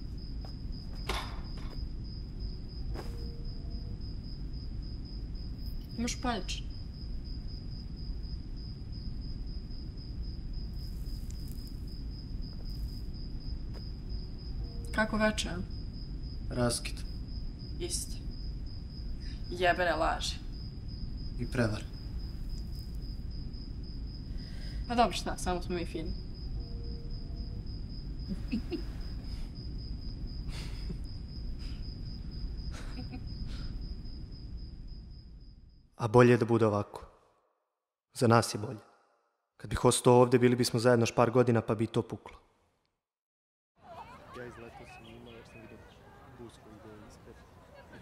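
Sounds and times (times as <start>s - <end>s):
cricket trilling: 0.0s - 36.6s, 43.8s - 48.0s
low night rumble: 0.0s - 36.7s.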